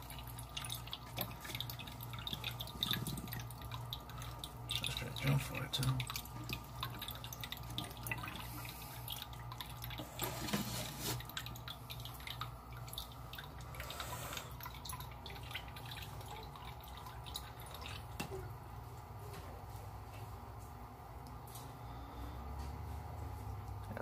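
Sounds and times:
small drips and clicks: 0.0 - 10.2, 11.2 - 19.1, 21.2 - 21.7
water splashing in a tank: 0.0 - 19.4
steady low hum: 0.0 - 24.0.

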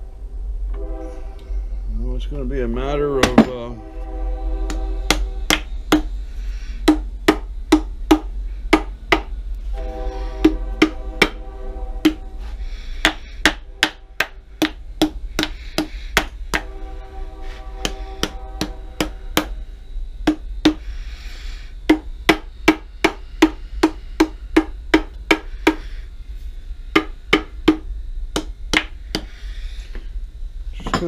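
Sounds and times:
hammer tapping on cast iron: 6.8 - 9.3, 10.4 - 11.4, 13.0 - 16.7, 20.3 - 20.8, 27.0 - 29.3.

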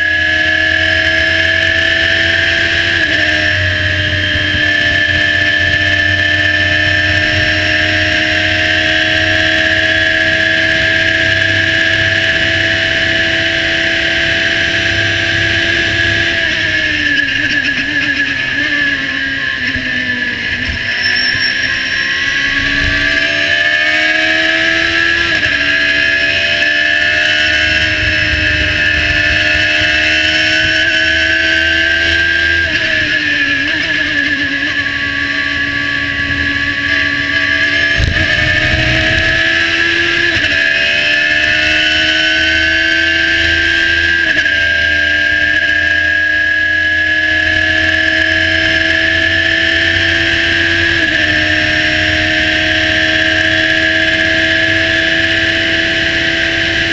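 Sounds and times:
high whine: 0.0 - 46.6
race car engine at high revs: 0.0 - 56.9
wind noise: 2.9 - 25.7, 27.0 - 31.7, 36.0 - 40.6.

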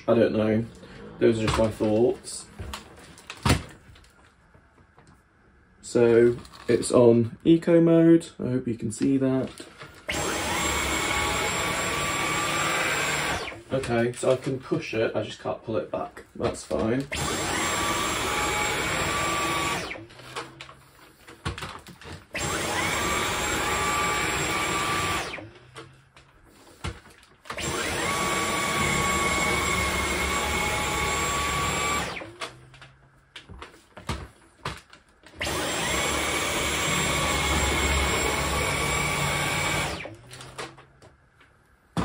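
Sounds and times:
vacuum cleaner whine: 10.1 - 14.0, 17.1 - 21.6, 22.3 - 26.9, 27.5 - 32.9, 35.3 - 40.7.

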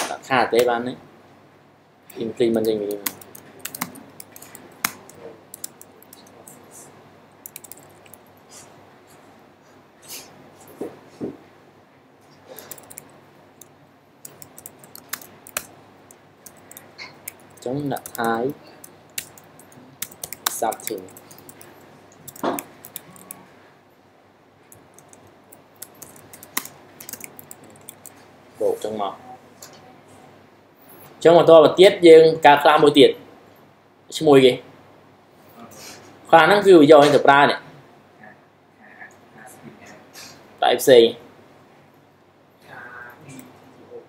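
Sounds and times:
keyboard keystrokes: 2.6 - 6.6, 7.4 - 8.3, 12.6 - 18.5, 19.1 - 23.4, 24.7 - 28.2
keyboard key clicks: 12.7 - 15.7, 19.1 - 23.4.

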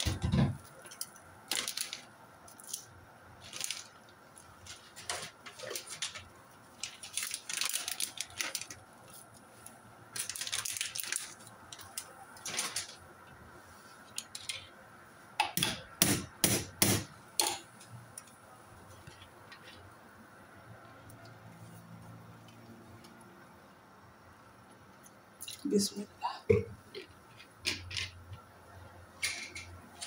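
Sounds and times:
almonds rustling into pot: 0.7 - 13.0.

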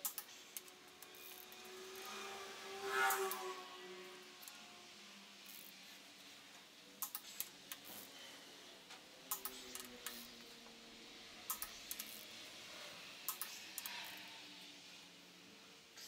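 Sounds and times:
torque wrench clicking: 7.0 - 8.1, 9.3 - 10.3, 11.5 - 12.3, 13.3 - 14.2.

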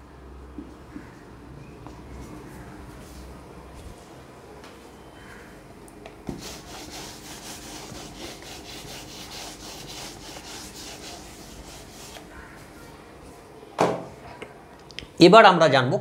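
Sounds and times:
duster wiping a whiteboard: 6.3 - 12.7.

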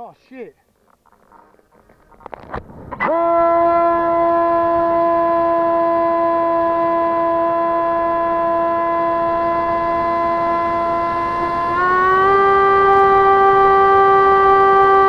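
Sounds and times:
electric motors and propellers whining: 6.2 - 15.0.

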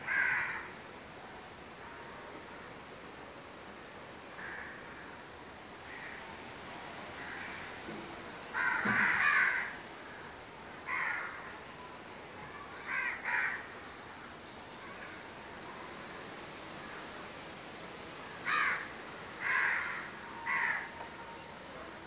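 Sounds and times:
crow cawing: 0.0 - 0.7, 4.4 - 5.0, 5.9 - 6.2, 7.2 - 7.7, 8.5 - 10.2, 10.9 - 11.6, 12.8 - 13.7, 18.4 - 20.9
faint steady hiss: 0.0 - 22.0.

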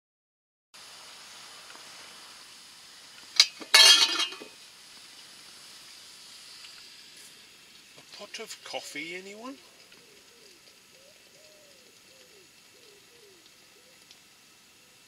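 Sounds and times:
faint steady hiss: 0.8 - 15.0
metal lid clinking on pot: 3.4 - 4.6.

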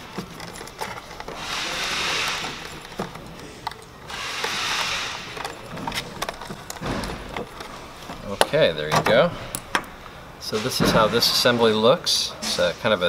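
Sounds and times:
screwdriver scraping screws: 0.0 - 7.9
plastic parts clicking: 0.0 - 10.0.

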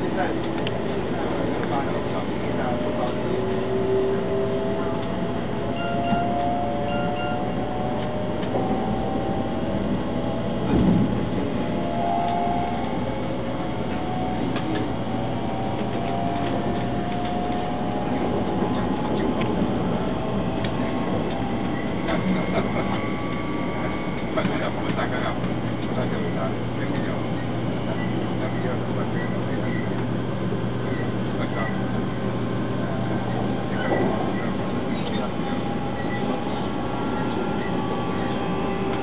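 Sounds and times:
faint whining tones: 0.0 - 39.0
train cabin noise: 0.0 - 39.0
brief thump: 10.7 - 11.1.

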